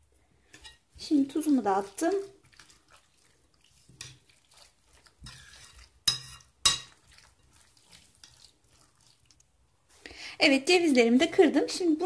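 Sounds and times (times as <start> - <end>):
rustling: 2.1 - 10.1.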